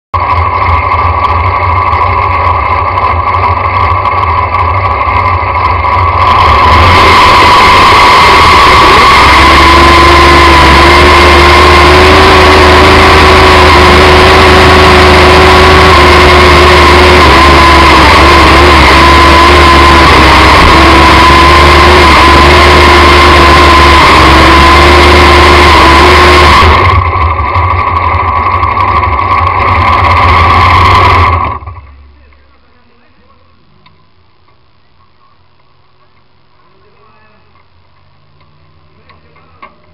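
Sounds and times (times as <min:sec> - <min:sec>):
racing engine at high revs: 0:00.2 - 0:32.0.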